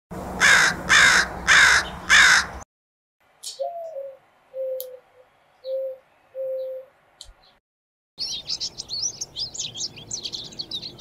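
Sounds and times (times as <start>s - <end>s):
crow cawing: 0.4s - 2.6s.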